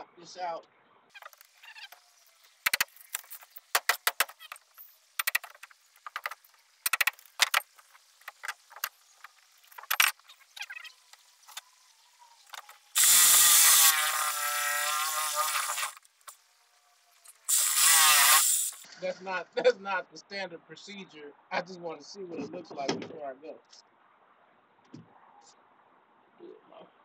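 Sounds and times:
reciprocating saw cutting: 1.2s - 16.4s, 17.0s - 18.9s
hand tools clicking and knocking: 2.6s - 4.6s, 5.2s - 8.9s.

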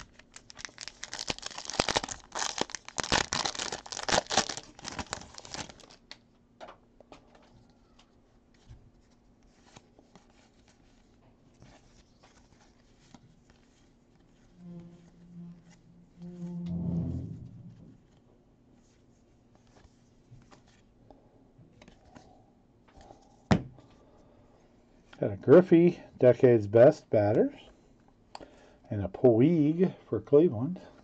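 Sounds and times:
wrapper tearing and crinkling: 0.0s - 6.2s
cards being handled: 7.3s - 15.1s.

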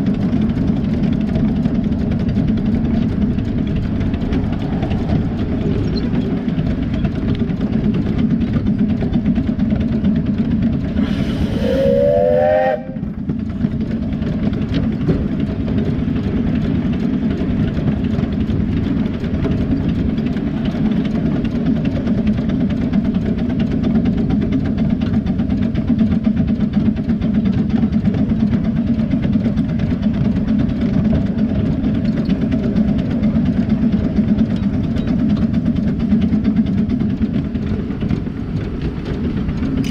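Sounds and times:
miniature steam locomotive rumbling: 0.0s - 39.9s
steam whistle blast: 11.1s - 13.0s.

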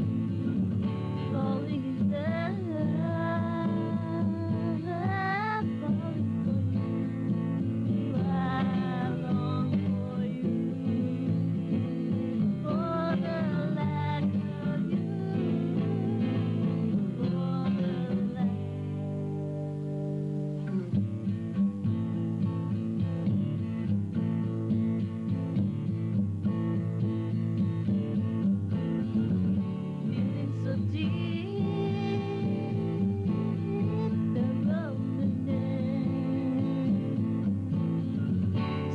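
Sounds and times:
acoustic guitar: 0.0s - 38.9s
person singing: 1.1s - 20.8s, 30.0s - 38.9s.

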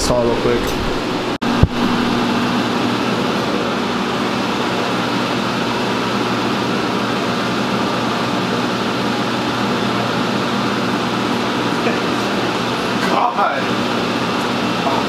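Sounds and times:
fan whoosh with low hum: 0.0s - 15.0s.

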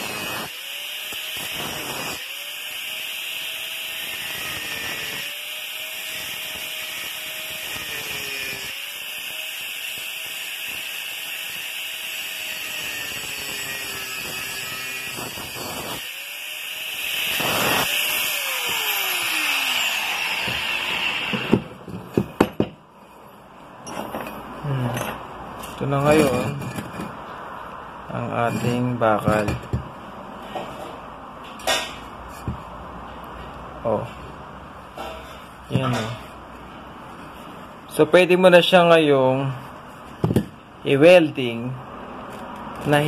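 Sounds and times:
angle grinder cutting pipe: 0.0s - 22.0s.

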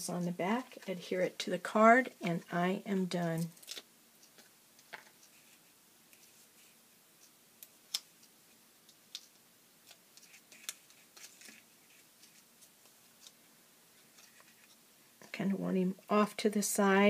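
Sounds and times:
light paper rustles: 10.2s - 13.4s.

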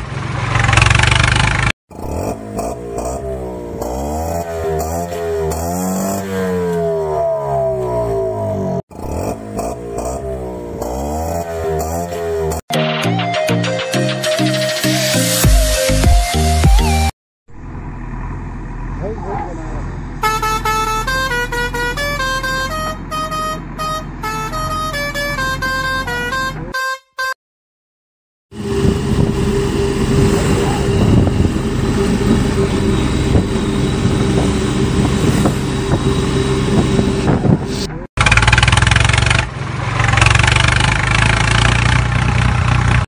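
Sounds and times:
noisy vehicle sound effect: 0.0s - 13.0s, 13.6s - 27.4s, 28.5s - 43.0s.

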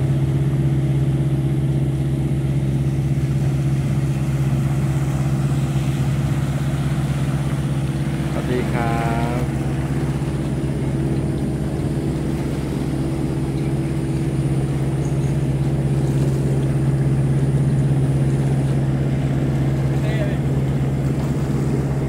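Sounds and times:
jet ski engine idling: 0.0s - 22.0s.

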